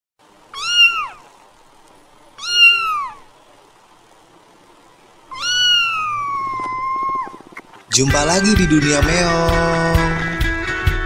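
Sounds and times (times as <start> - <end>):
cat meowing: 0.5 - 1.4, 2.4 - 3.3, 5.3 - 7.6.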